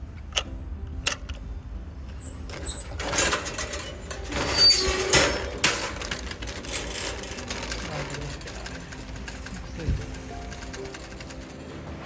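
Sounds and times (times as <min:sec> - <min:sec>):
shopping cart metal clicks: 0:02.1 - 0:12.0
shopping cart rattling: 0:02.2 - 0:12.0.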